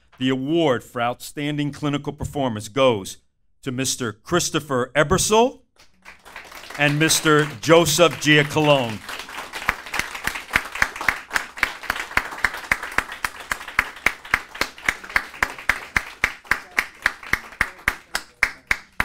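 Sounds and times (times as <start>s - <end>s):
close hands clapping loudly: 5.8s - 19.0s
crowd applauding: 5.8s - 19.0s.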